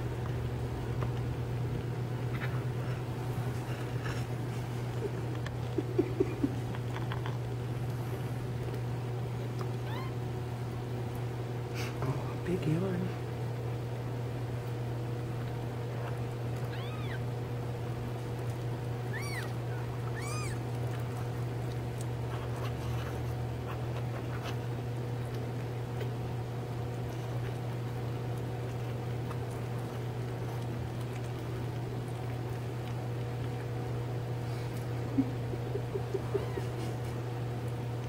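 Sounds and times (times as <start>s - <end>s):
steady low hum: 0.0s - 38.0s
kittens mewing: 9.7s - 10.3s, 16.6s - 17.4s, 18.9s - 21.4s.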